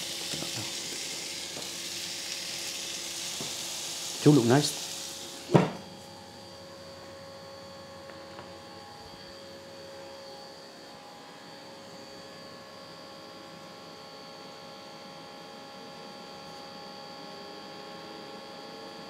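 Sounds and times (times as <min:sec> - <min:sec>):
chicken sizzling on grill: 0:00.0 - 0:05.8
grill fan humming: 0:00.0 - 0:19.0
grill lid thud: 0:05.5 - 0:05.9.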